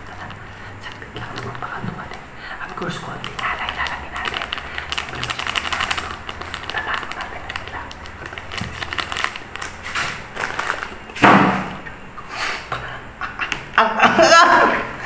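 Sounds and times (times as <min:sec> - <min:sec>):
plastic bag crinkling: 0:00.0 - 0:11.9.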